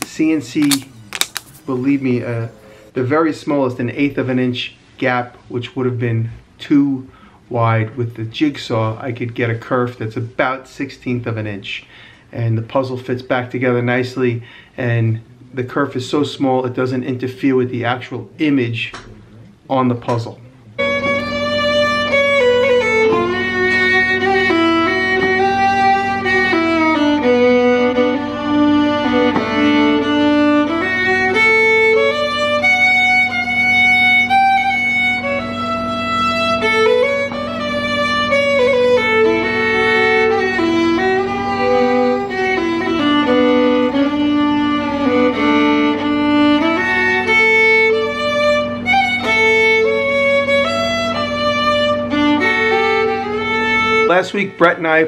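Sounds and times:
steady low drone: 0.7s - 3.3s, 30.0s - 54.1s
solo fiddle melody: 20.8s - 55.0s.

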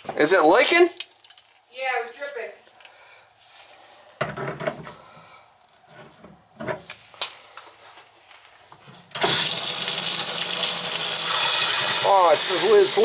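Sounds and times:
water rushing into tub: 9.2s - 13.0s.

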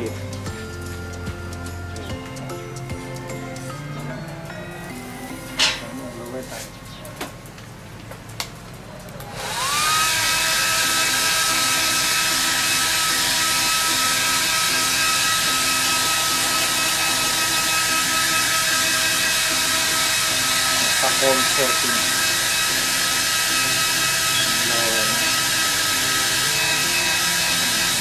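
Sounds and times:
hair dryer running: 9.2s - 28.0s.

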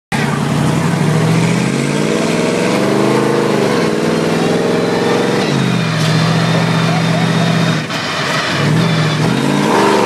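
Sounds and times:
truck engine revving: 0.1s - 10.0s.

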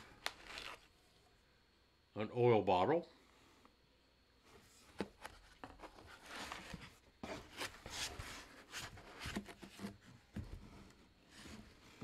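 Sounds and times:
foam and cardboard scraping: 4.7s - 12.0s.

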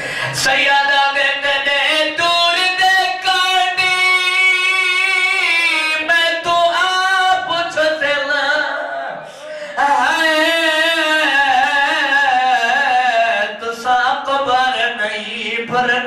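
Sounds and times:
singer breathing: 0.0s - 0.4s, 9.2s - 9.8s
man singing into microphone: 0.0s - 16.0s.

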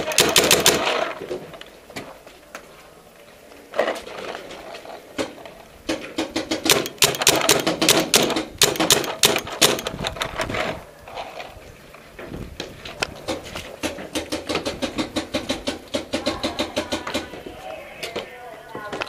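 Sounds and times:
paintball guns firing: 0.0s - 1.2s, 5.9s - 10.3s.

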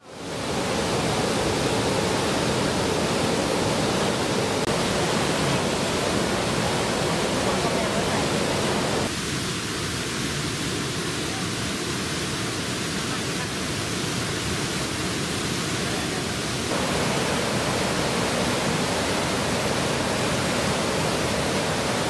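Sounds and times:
water spilling over cascades: 0.0s - 22.0s.

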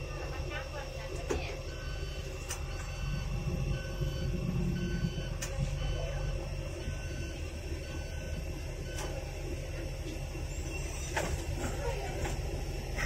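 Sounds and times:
bus engine rumble: 0.0s - 13.0s.

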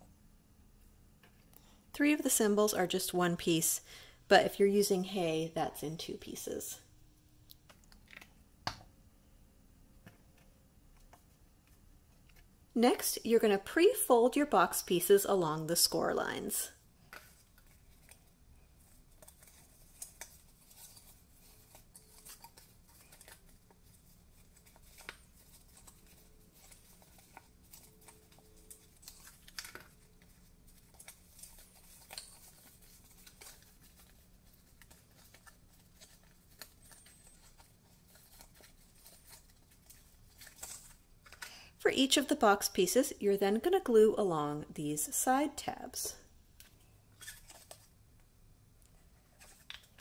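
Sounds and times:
cardstock being folded: 17.1s - 41.5s, 47.2s - 48.0s.

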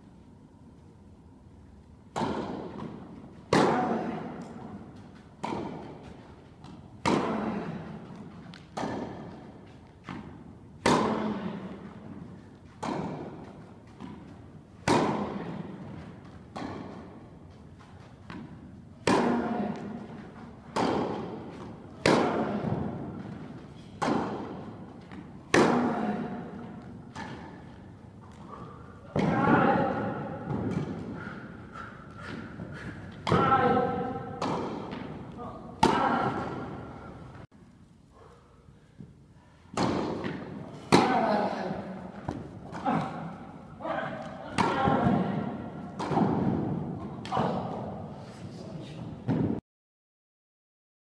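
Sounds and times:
tennis racket strikes: 2.1s - 4.6s, 5.4s - 7.6s, 8.6s - 11.4s, 12.8s - 13.4s, 14.0s - 15.4s, 16.5s - 17.2s, 18.3s - 20.1s, 20.7s - 27.7s, 33.1s - 37.0s, 39.7s - 41.5s, 44.6s - 47.5s
tennis ball bounces: 2.1s - 11.4s, 12.4s - 28.5s, 33.1s - 37.0s, 39.7s - 41.6s, 44.2s - 47.3s.

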